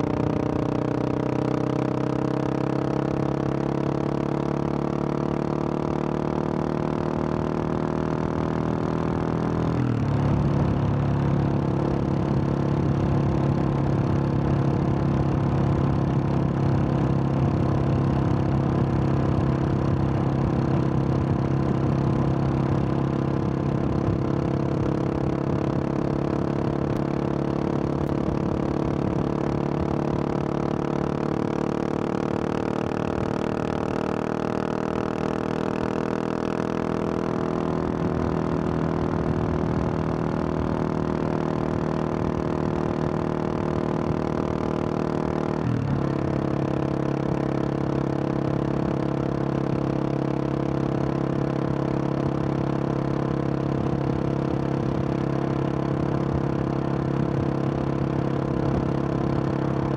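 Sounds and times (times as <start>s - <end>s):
motorcycle engine cruising: 0.0s - 59.9s.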